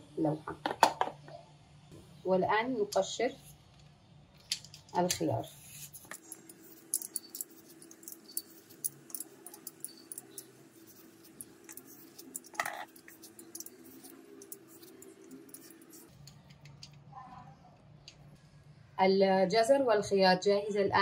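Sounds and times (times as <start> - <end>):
vegetable peeler scraping cucumber: 5.4 - 16.1.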